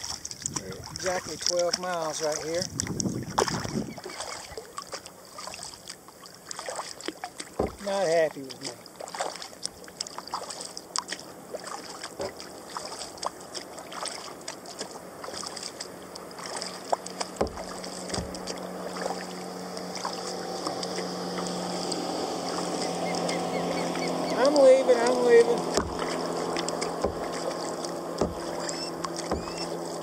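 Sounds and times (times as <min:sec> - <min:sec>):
paddle blades dipping and dripping: 0:00.0 - 0:30.0
water lapping at hull: 0:00.0 - 0:30.0
steady low hum: 0:08.6 - 0:30.0.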